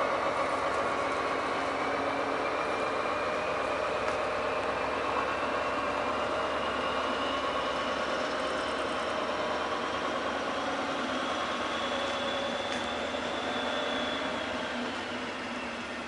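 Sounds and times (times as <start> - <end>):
diesel locomotive whine: 0.0 - 16.0.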